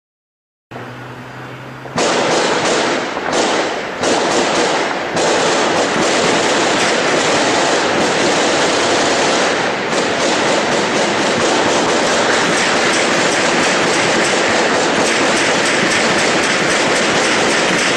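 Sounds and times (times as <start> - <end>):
heavy automatic gunfire: 2.0 - 17.9.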